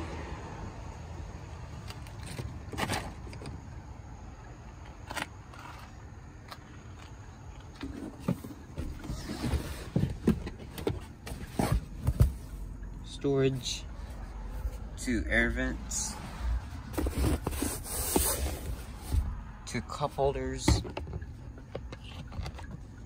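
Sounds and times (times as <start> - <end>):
soft knocks and bumps: 7.8 - 12.6.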